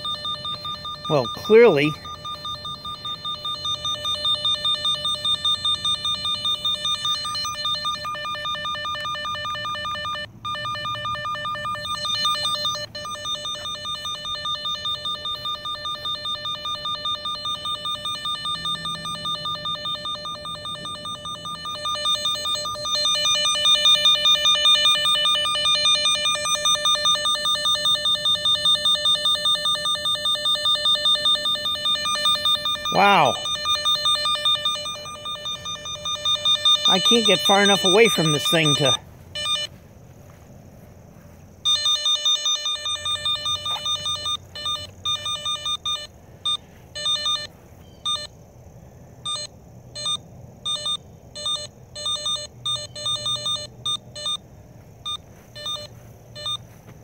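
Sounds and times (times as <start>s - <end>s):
cable locator beeping rapidly: 0.0s - 39.7s, 41.7s - 48.3s, 49.3s - 54.4s.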